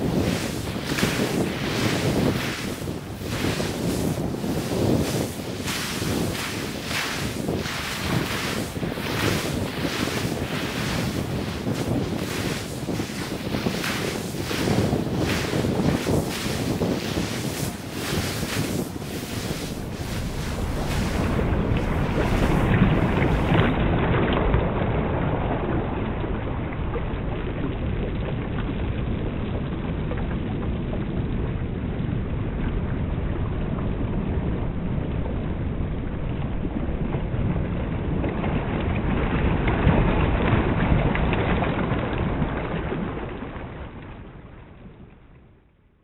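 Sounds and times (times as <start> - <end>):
sea surf: 0.0 - 24.3
wind: 0.0 - 46.0.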